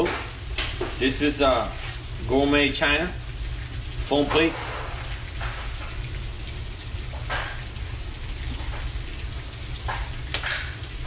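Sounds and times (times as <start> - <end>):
fish fillets sizzling in a pan: 0.3 - 11.0.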